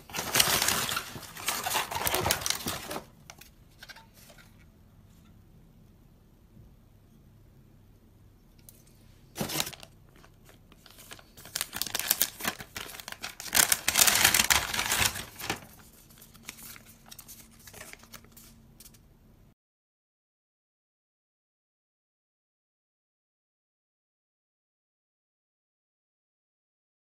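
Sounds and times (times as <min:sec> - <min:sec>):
packing paper rustling: 0:00.0 - 0:04.5, 0:09.4 - 0:19.0.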